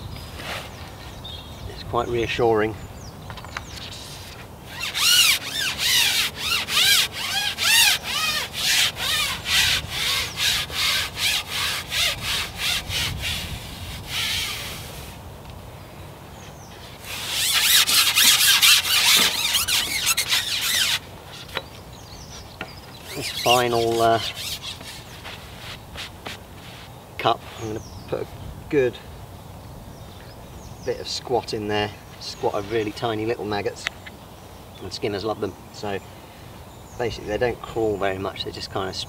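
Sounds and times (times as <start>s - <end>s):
fishing pole sections rubbing: 3.8s - 15.2s, 17.0s - 21.6s, 23.0s - 26.8s.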